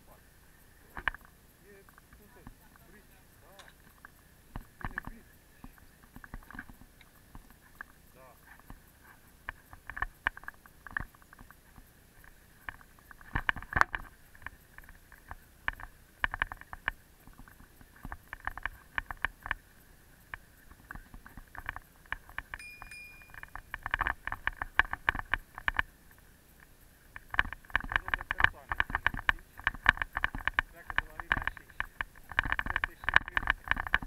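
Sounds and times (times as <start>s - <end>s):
bicycle rattling over rough path: 0.8s - 34.0s
brief high tone: 22.6s - 23.4s.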